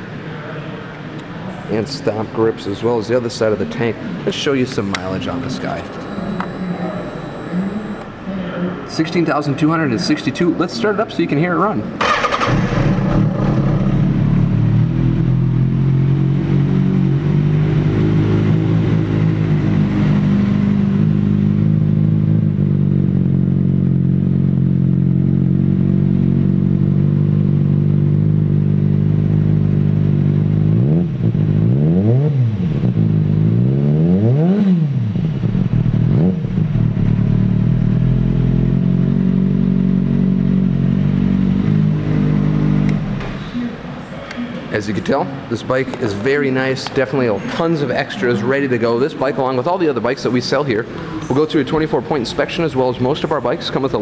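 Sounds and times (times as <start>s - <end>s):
throttle blips revving: 4.9s - 8.2s
engine starting clatter: 12.0s - 13.6s.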